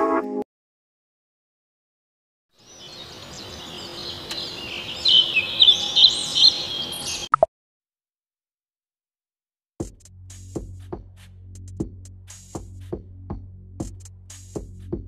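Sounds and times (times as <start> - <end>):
bird-like chirps and whistles: 2.6 - 7.5.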